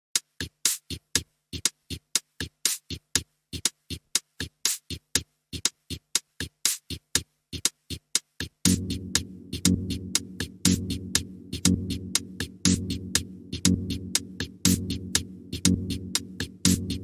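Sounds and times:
drum machine beat: 0:00.1 - 0:17.0
bass and synth: 0:08.7 - 0:17.0.

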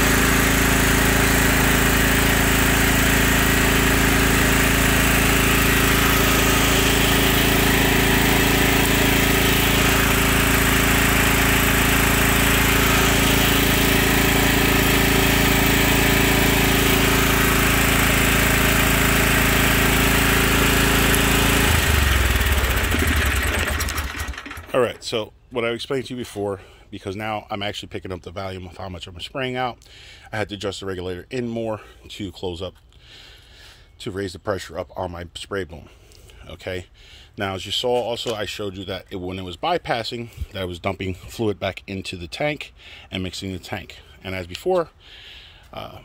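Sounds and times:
mower engine running: 0:00.0 - 0:25.0.

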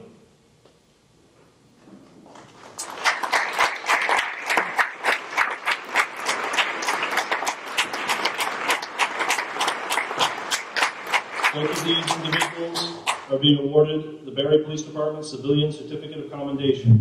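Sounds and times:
audience applauding: 0:02.6 - 0:13.3.

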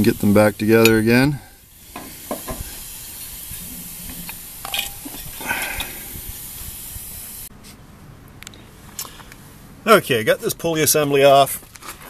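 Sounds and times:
spraying hiss: 0:00.0 - 0:07.5.

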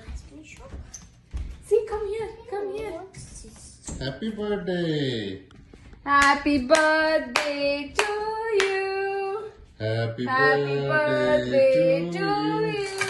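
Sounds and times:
hand claps: 0:06.2 - 0:08.8, 0:12.7 - 0:13.0
person singing: 0:06.2 - 0:13.0.

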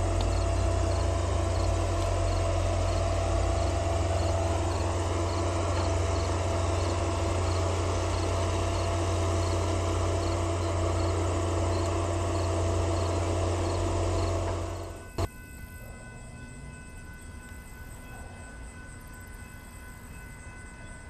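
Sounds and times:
loud steady low rumble: 0:00.0 - 0:15.3
crickets chirping: 0:00.0 - 0:21.0.

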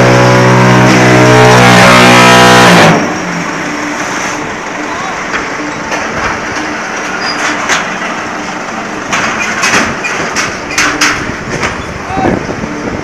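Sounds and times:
block-making machinery running: 0:03.1 - 0:13.0
metallic clanks and knocks: 0:05.3 - 0:08.2, 0:09.1 - 0:11.9.

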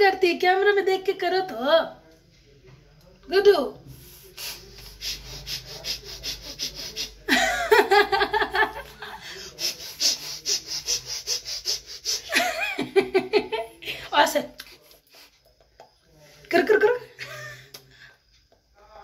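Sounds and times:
breathy puffs: 0:03.9 - 0:15.4
woman laughing: 0:06.9 - 0:09.3, 0:12.1 - 0:14.1.

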